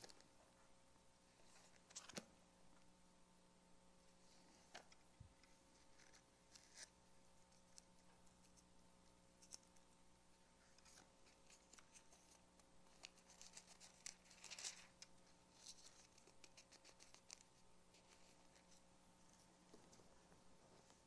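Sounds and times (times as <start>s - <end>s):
faint electrical hum: 0.0s - 21.0s
pages being turned: 1.8s - 2.3s, 10.8s - 18.7s.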